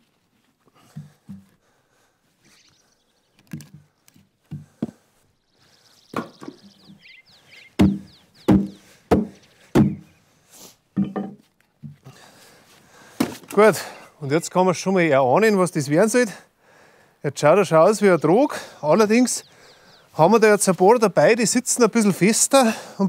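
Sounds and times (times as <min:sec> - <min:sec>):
axe striking wood: 0:07.8 - 0:10.0.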